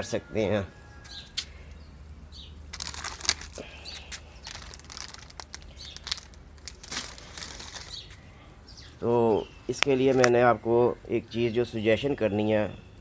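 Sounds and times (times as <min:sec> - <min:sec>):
plastic bag crinkling: 0:02.7 - 0:08.2.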